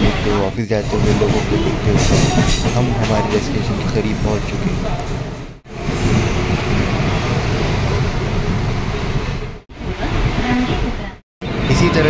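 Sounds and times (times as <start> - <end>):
train running noise: 0.0 - 12.0.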